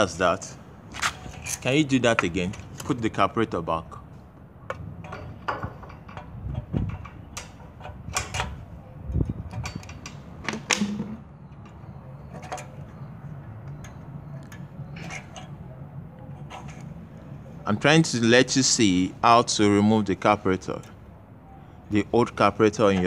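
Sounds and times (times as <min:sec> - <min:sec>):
metal clicks and knocks: 0:04.6 - 0:13.0.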